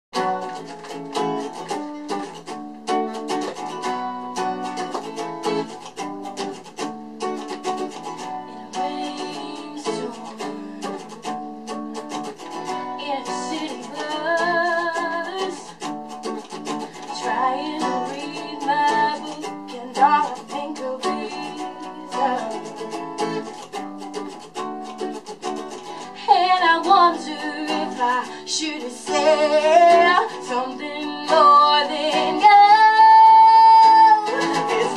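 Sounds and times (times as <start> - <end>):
acoustic guitar strumming: 0.2 - 34.9
woman singing: 8.4 - 11.4, 12.6 - 15.9, 16.6 - 23.5, 26.0 - 34.9.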